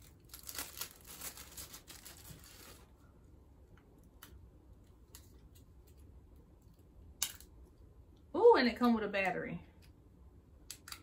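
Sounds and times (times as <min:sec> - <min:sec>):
plastic bag crinkling and tearing: 0:00.0 - 0:03.0.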